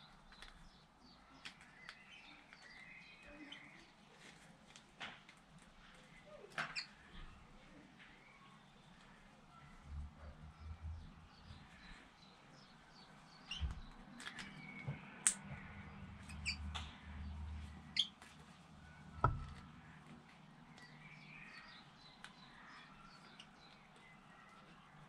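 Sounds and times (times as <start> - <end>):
birds chirping: 0.0 - 4.2, 6.0 - 25.0
loud knock: 19.2 - 19.5.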